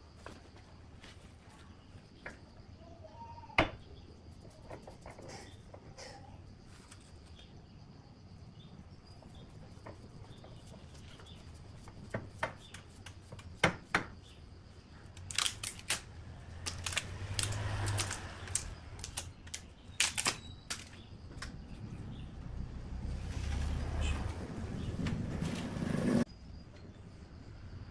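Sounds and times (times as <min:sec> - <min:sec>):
bark cracking off a log: 0:15.2 - 0:21.0
rustling scrape: 0:23.1 - 0:26.3.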